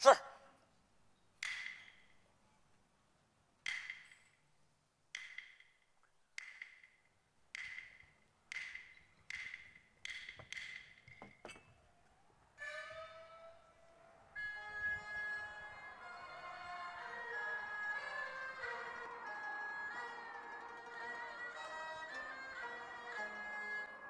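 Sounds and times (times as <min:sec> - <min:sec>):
sharp wooden percussion strokes: 0:01.4 - 0:02.3, 0:03.6 - 0:04.5, 0:05.1 - 0:11.9.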